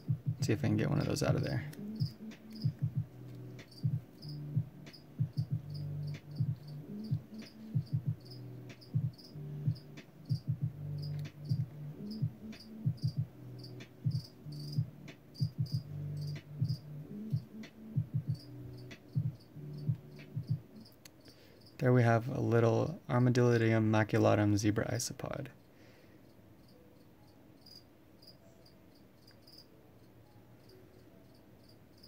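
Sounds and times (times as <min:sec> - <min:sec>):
low hum: 0:00.0 - 0:21.2
cricket chirping: 0:01.9 - 0:02.8, 0:03.6 - 0:14.8, 0:15.4 - 0:17.4, 0:18.2 - 0:21.8, 0:25.6 - 0:32.0.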